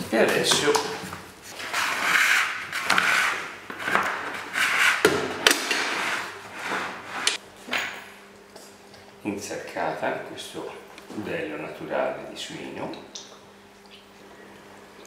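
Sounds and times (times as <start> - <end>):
metal scraping and rubbing: 5.8 - 7.4.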